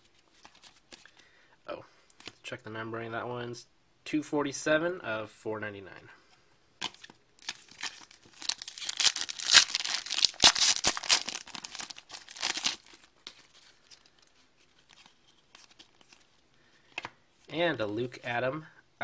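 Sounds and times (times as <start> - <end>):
foil wrapper crinkling: 7.4 - 16.3.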